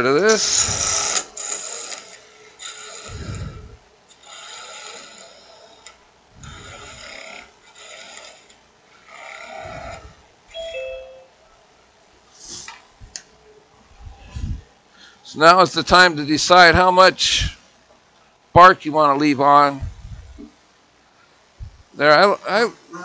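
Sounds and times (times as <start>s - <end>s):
gouge cutting wood on a lathe: 0.3s - 3.5s, 4.1s - 10.0s.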